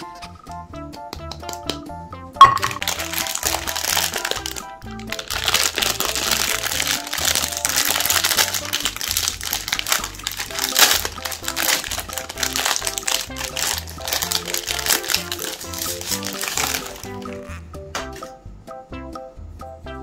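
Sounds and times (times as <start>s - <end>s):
background music with bass line: 0.0s - 20.0s
plastic wrapper crinkling: 2.5s - 17.6s.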